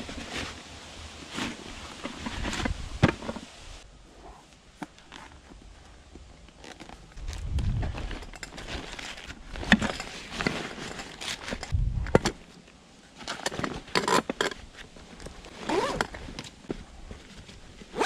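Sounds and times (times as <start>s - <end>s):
rustling of nylon backpack: 0.0s - 3.4s, 6.5s - 11.8s, 13.1s - 18.0s
zipper pull: 15.6s - 16.2s.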